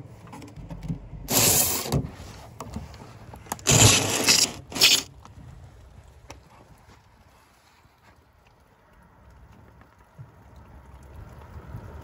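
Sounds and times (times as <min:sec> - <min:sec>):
curtain rubbing on microphone: 0:01.3 - 0:02.4, 0:03.7 - 0:05.1.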